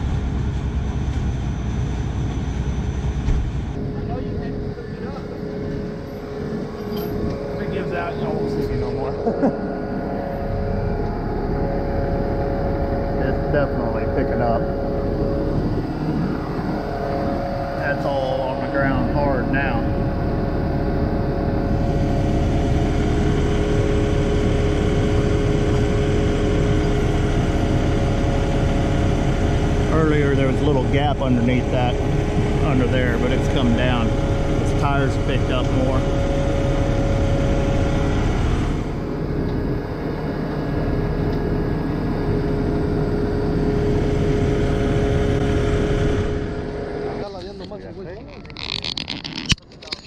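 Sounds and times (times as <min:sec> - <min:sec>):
steady whine: 0:00.0 - 0:50.0
truck engine rumbling: 0:00.0 - 0:50.0.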